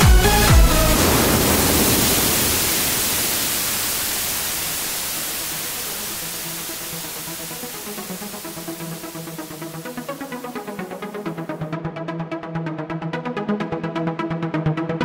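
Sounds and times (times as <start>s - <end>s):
white noise hiss: 0.0s - 11.6s
electronic dance music: 0.0s - 11.8s.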